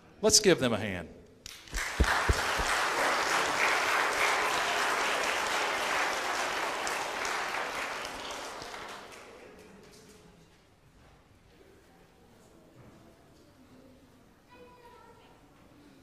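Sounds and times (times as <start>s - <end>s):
congregation applauding: 1.5s - 9.6s
low thumps: 1.8s - 2.8s.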